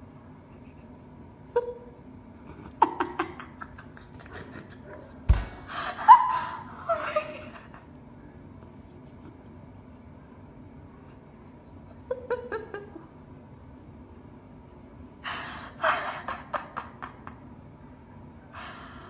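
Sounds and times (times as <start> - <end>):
person laughing: 2.5 - 7.9, 15.7 - 17.5
thump on microphone: 5.3 - 5.6.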